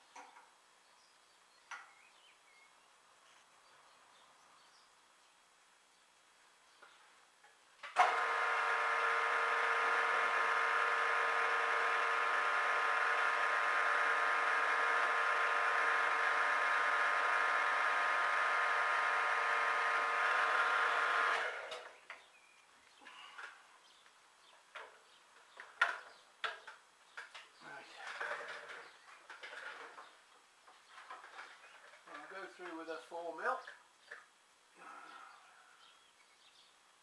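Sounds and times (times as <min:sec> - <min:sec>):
mill drill motor and gear whine: 0:08.0 - 0:22.0.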